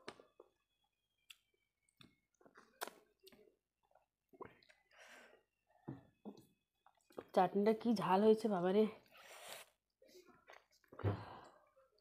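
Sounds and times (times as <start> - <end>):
faint chewing and mouth clicks: 0.0 - 5.0.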